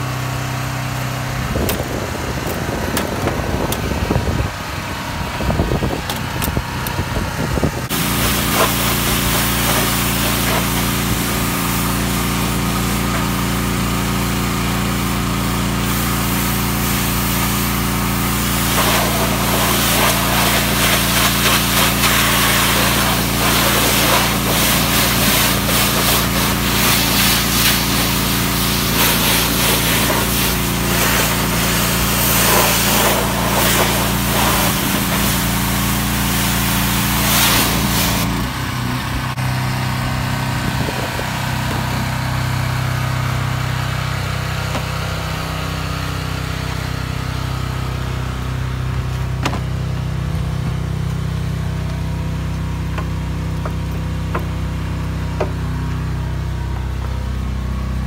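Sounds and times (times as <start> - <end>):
pressure washer engine running: 0.0 - 58.0
water spraying on metal: 7.9 - 38.3
brush scrubbing glass: 18.6 - 28.1, 28.9 - 35.4.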